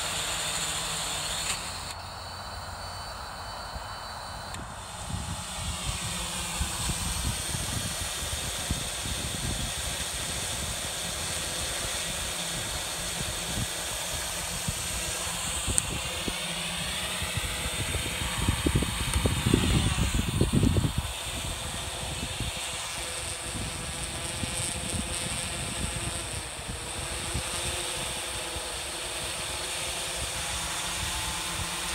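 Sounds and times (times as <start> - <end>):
drone rotors buzzing: 0.0 - 31.9
wind buffeting microphone: 4.5 - 11.9, 12.5 - 28.2.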